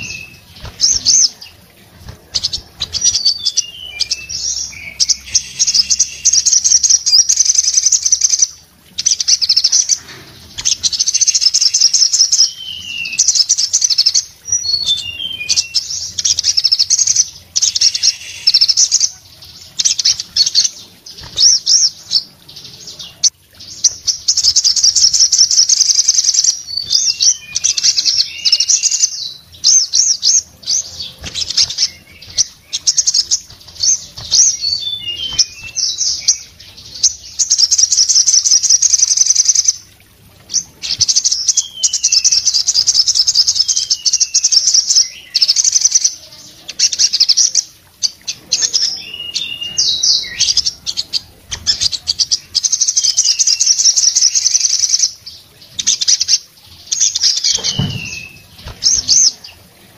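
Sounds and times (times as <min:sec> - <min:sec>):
wings fluttering: 0:00.0 - 0:03.3, 0:31.0 - 0:35.8, 0:57.5 - 0:59.2
sunbird singing rapid trills: 0:00.0 - 0:39.8.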